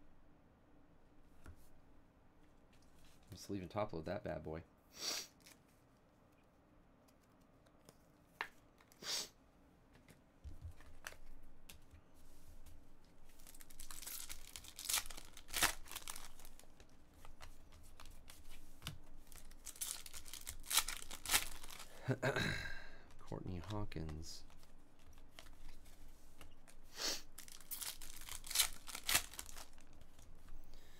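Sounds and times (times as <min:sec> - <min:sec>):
foil wrapper crinkling and tearing: 0:13.3 - 0:17.4, 0:19.3 - 0:22.1, 0:27.2 - 0:30.3.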